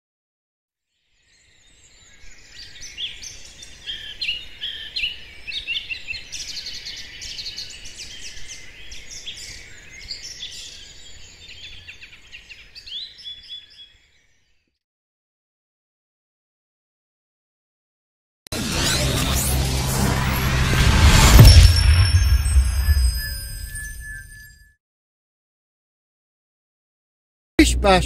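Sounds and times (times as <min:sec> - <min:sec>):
songbirds chirping and trilling: 0:01.0 - 0:14.7.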